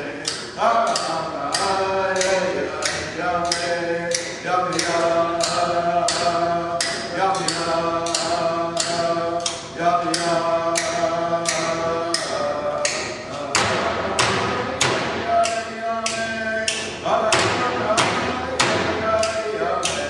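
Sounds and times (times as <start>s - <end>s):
frame drum beat: 17.2s - 20.0s.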